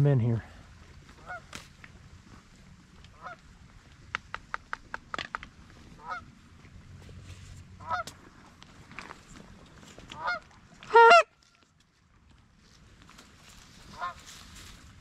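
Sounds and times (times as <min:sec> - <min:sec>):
goose honking: 0:01.2 - 0:01.5, 0:06.0 - 0:06.3, 0:07.8 - 0:08.1, 0:10.2 - 0:11.4, 0:13.9 - 0:14.2
goose clucking: 0:06.0 - 0:06.3, 0:07.8 - 0:08.2, 0:10.1 - 0:11.3, 0:13.9 - 0:14.2.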